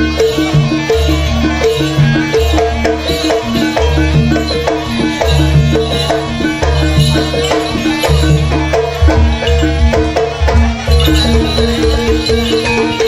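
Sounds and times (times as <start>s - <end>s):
drums pulsing: 0.0s - 13.0s
struck pitched percussion melody: 0.0s - 13.0s.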